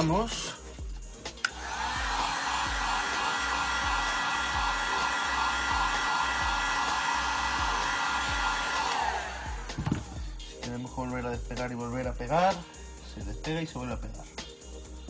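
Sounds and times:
heat gun switch click: 0:01.4 - 0:01.6
heat gun blowing with whine: 0:01.4 - 0:10.1.

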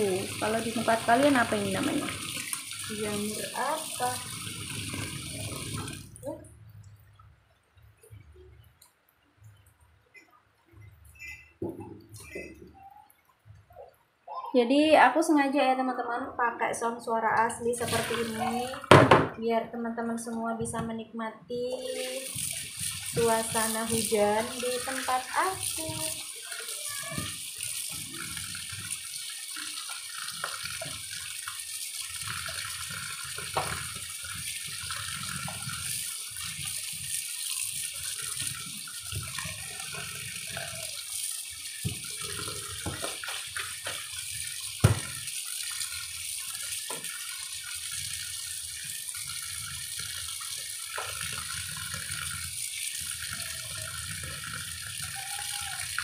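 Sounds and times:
tap water running into sink: 0:00.0 - 0:06.4, 0:17.3 - 0:19.4, 0:21.6 - 0:56.0
colander knocking against sink: 0:18.9 - 0:19.4.

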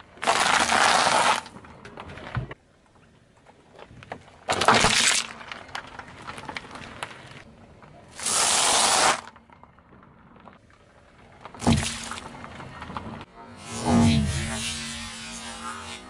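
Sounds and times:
loud hiss: 0:08.2 - 0:09.3.

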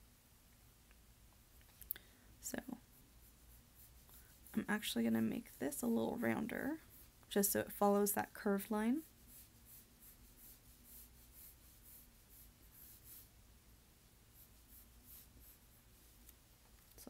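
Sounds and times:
pencil scratching on paper: 0:02.6 - 0:08.0, 0:08.6 - 0:13.4, 0:14.3 - 0:16.2.

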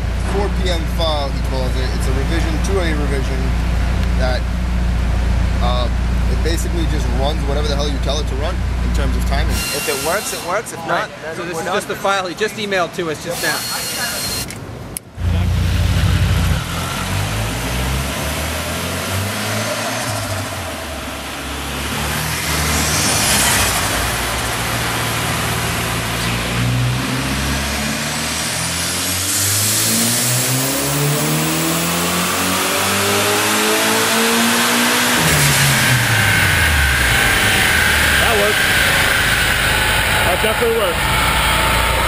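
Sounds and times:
turbo whistle: 0:09.5 - 0:10.5, 0:13.4 - 0:14.5
engine revving under load: 0:15.2 - 0:42.0.

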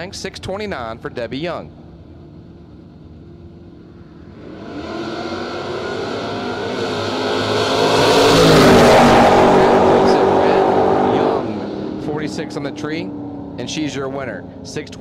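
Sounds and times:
drag racing cars accelerating: 0:03.7 - 0:15.0.

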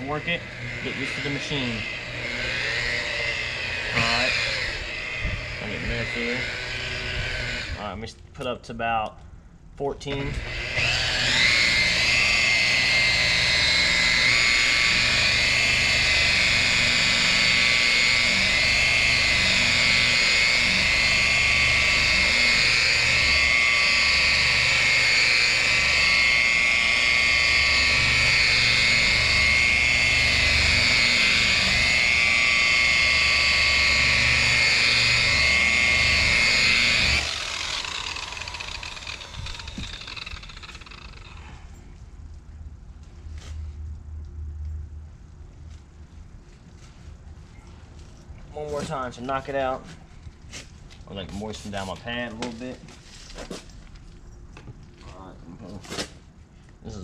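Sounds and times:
rotary polisher motor whine: 0:00.0 - 0:08.0, 0:10.3 - 0:41.5.

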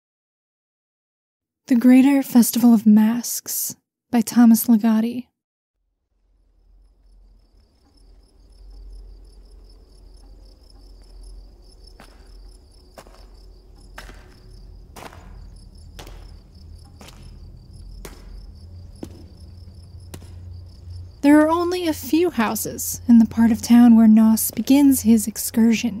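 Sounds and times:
low rumble: 0:06.0 - 0:26.0
crickets chirping: 0:06.1 - 0:26.0
sharp ticks: 0:11.9 - 0:25.6.

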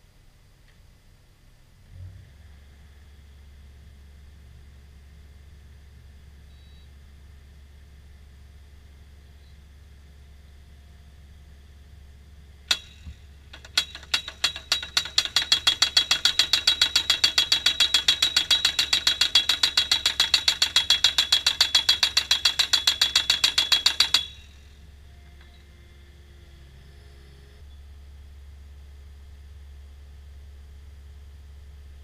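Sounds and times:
post thumper hammering metal post: 0:12.7 - 0:24.7
high metallic ring: 0:12.7 - 0:24.8.

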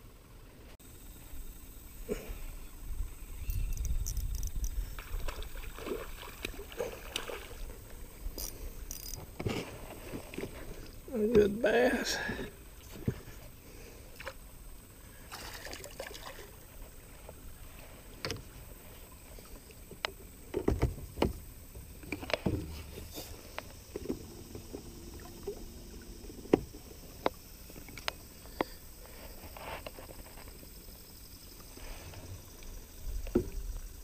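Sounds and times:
fishing gear clattering on boat: 0:03.5 - 0:13.6, 0:18.1 - 0:30.8
thumps on boat: 0:20.0 - 0:25.6, 0:26.3 - 0:27.3.

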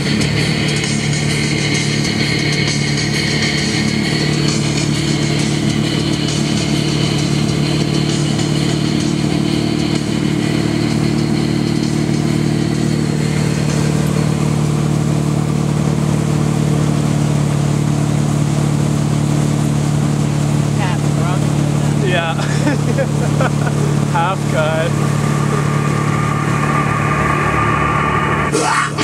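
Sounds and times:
boat engine running: 0:00.0 - 0:29.0
churning wake rushing: 0:00.0 - 0:29.0.

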